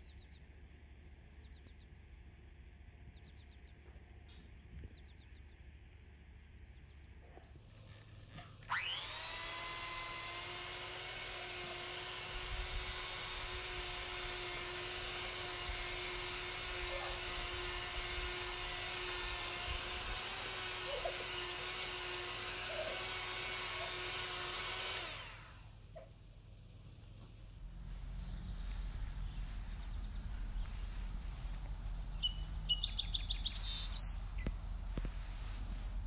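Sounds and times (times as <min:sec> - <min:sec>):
electric hand mixer whining: 0:08.6 - 0:25.9.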